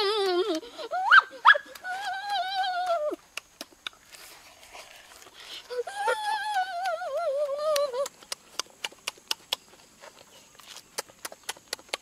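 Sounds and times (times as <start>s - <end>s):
child's wavering vocal sound: 0.0s - 3.2s, 5.5s - 8.2s
lip-smacking and chewing clicks: 3.2s - 4.1s, 6.4s - 12.0s.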